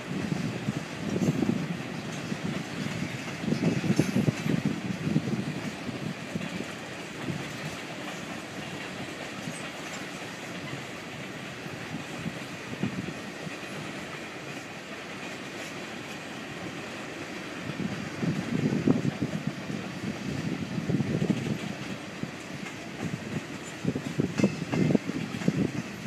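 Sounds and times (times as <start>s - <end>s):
freight train rolling past: 0.0s - 26.0s
wheels clattering over rail joints: 0.1s - 17.4s, 18.2s - 26.0s.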